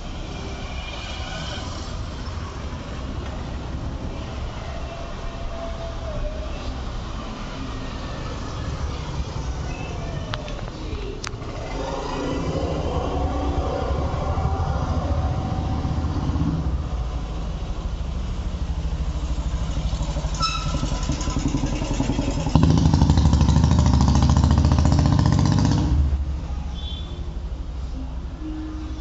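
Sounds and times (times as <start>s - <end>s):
engine running: 10.9s - 26.2s.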